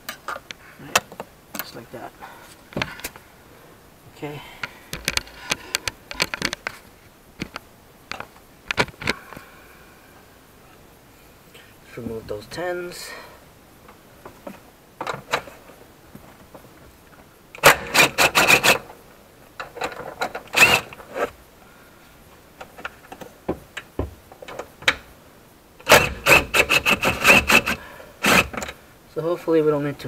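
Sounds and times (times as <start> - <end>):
cordless driver whining and clattering: 19.9 - 21.2, 25.8 - 28.8.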